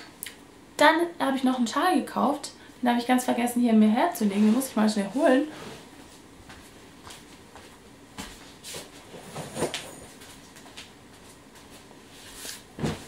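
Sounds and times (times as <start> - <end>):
knocks and rustles of person moving: 4.3 - 13.0.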